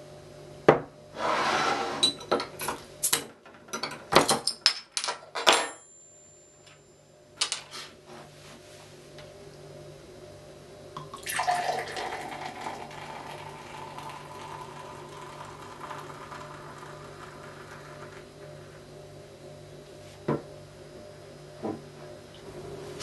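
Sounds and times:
beer pouring and foaming: 11.0s - 18.8s.

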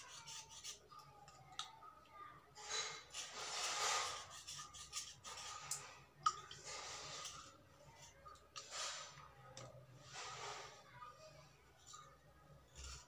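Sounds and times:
knife scraping slate: 0.0s - 1.0s, 2.6s - 9.2s, 12.7s - 13.0s.

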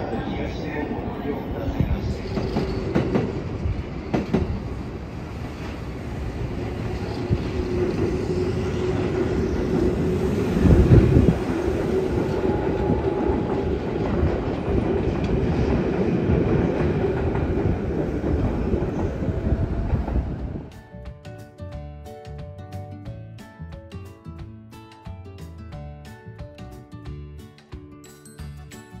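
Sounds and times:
train rumbling over bridge: 0.0s - 21.1s.

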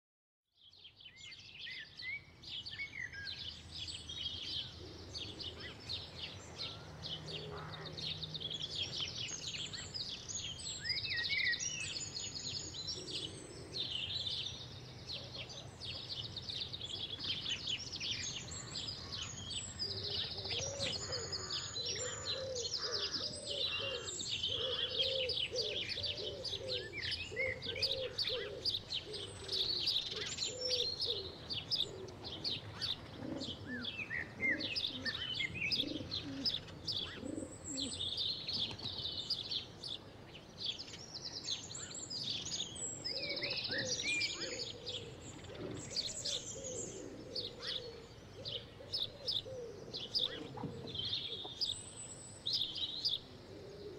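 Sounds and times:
songbirds chirping: 0.6s - 53.9s
low repeated bird call: 1.3s - 53.9s.

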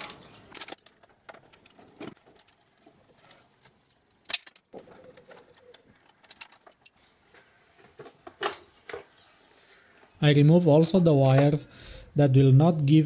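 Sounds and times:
metal clatter: 0.0s - 7.0s.

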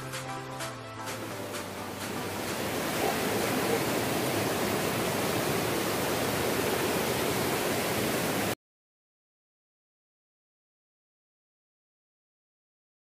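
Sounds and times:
waterfall rushing: 1.0s - 8.6s.

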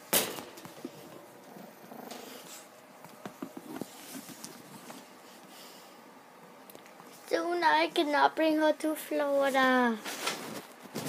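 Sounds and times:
small dog growling: 1.4s - 2.7s.

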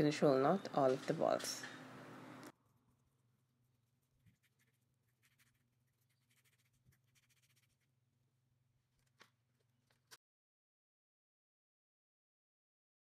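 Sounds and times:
faint steady hum: 0.0s - 7.7s.

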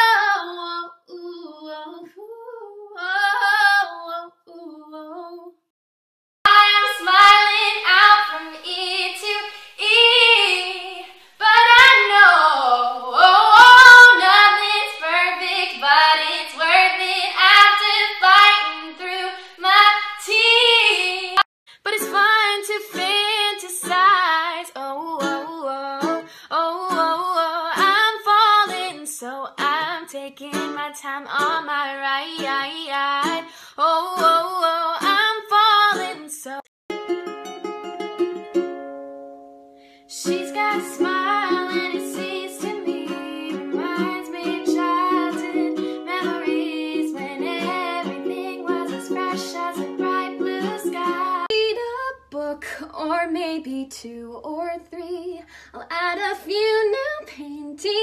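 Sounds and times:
young woman singing: 0.0s - 5.6s, 6.5s - 36.6s, 40.1s - 58.0s
strummed ukulele: 21.9s - 29.0s, 29.6s - 36.2s, 36.9s - 51.5s.

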